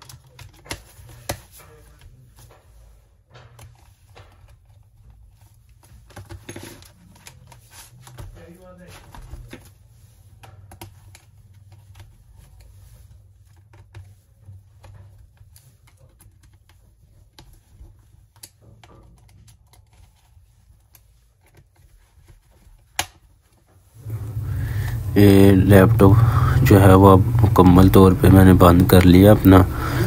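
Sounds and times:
low steady hum: 0:23.9 - 0:30.0.

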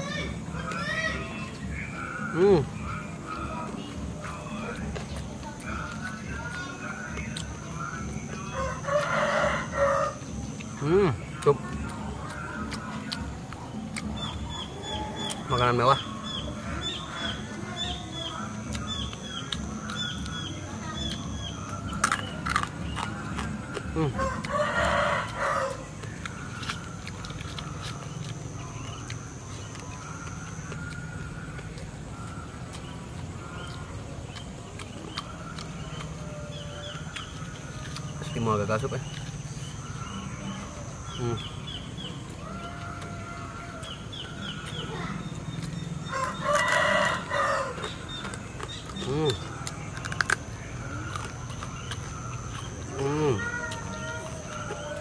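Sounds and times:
steady low hum: 0:00.0 - 0:55.0
rooster crowing: 0:08.5 - 0:10.3, 0:24.1 - 0:25.9, 0:42.4 - 0:44.0, 0:46.0 - 0:48.0.

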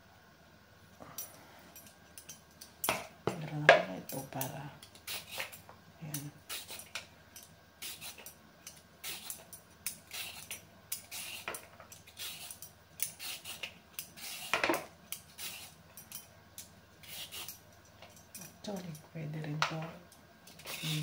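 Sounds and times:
peeler scraping carrot: 0:04.1 - 0:05.6, 0:06.4 - 0:06.9, 0:07.8 - 0:08.3, 0:09.0 - 0:15.8, 0:17.0 - 0:17.6, 0:20.5 - 0:21.0.

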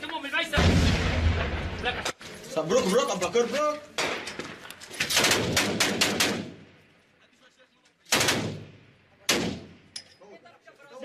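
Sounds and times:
rifle gunshots: 0:05.0 - 0:06.8, 0:08.1 - 0:09.9.

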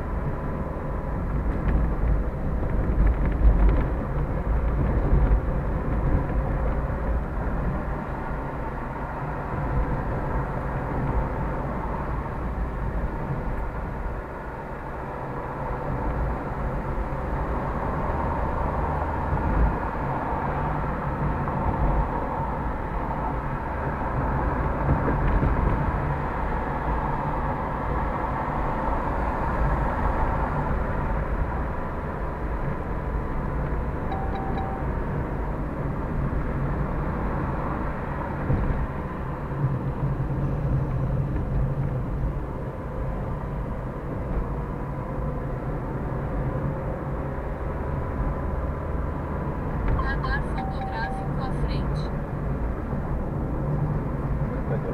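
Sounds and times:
car engine and road noise: 0:00.0 - 0:54.9.

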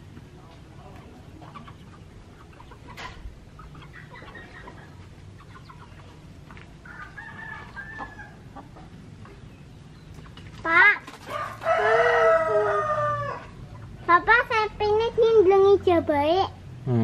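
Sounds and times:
chickens clucking softly: 0:00.0 - 0:14.1
high drawn-out crowing call: 0:11.3 - 0:13.6.

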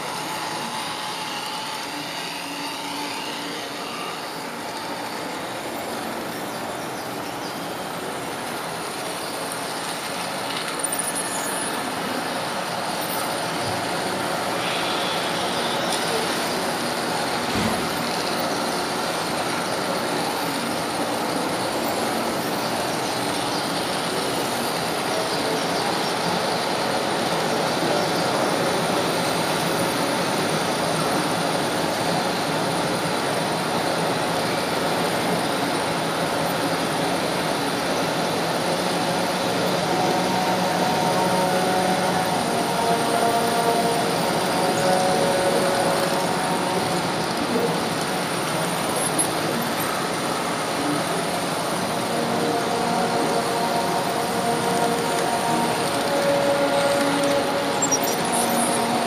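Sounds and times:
model train rolling on track: 0:00.0 - 0:59.0.

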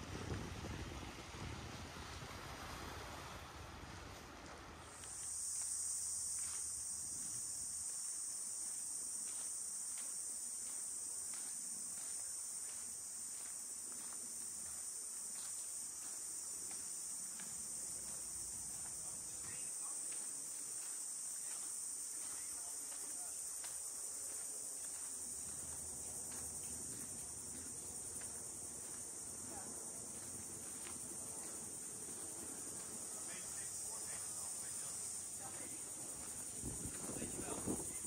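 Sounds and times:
water: 0:00.0 - 0:05.7
insects droning: 0:00.0 - 0:38.0
wind: 0:00.0 - 0:38.0
footsteps on a sandy path: 0:04.0 - 0:38.0.

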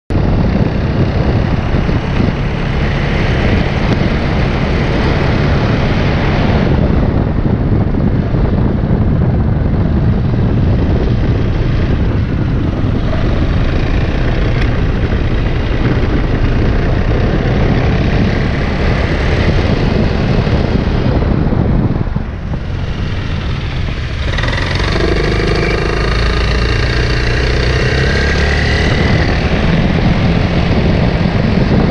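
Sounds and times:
scooter engine running: 0:09.9 - 0:21.4, 0:22.1 - 0:31.9.

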